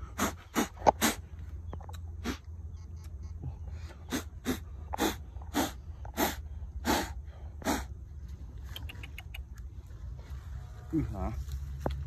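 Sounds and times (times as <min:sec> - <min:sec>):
man blowing puffs of air: 0:00.0 - 0:01.3, 0:03.8 - 0:08.0.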